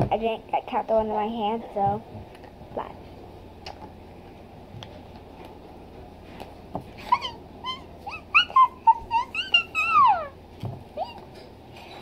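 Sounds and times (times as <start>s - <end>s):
dog whimpering: 7.0s - 10.4s, 11.0s - 11.5s.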